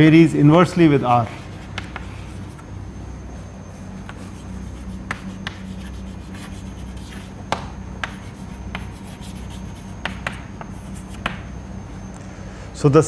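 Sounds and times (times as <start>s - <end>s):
chalk scratching on blackboard: 1.0s - 2.7s, 3.7s - 11.5s
chalk tapping on board: 1.2s - 2.6s, 4.0s - 11.5s.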